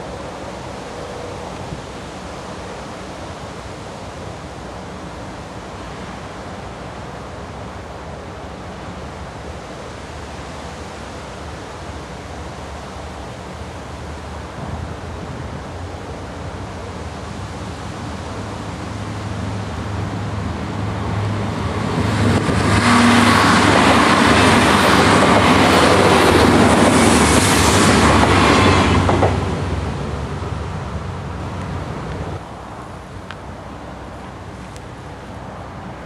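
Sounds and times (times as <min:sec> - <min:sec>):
wind over open ground: 0:00.0 - 0:36.0
electric train rumble: 0:18.0 - 0:32.9.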